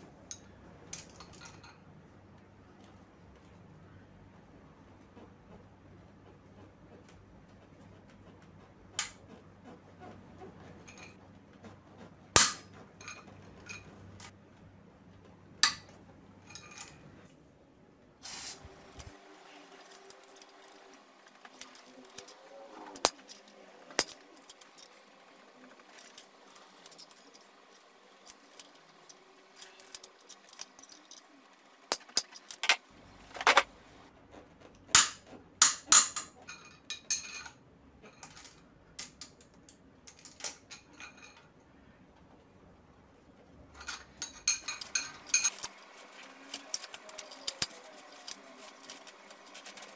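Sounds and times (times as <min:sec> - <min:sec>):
metal hand tools clinking: 0:19.7 - 0:25.1, 0:25.8 - 0:32.8, 0:43.8 - 0:49.9.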